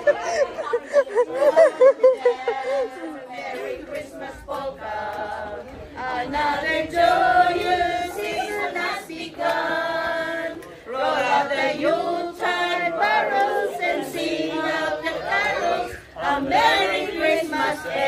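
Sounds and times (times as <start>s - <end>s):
choir singing: 0.0s - 18.0s.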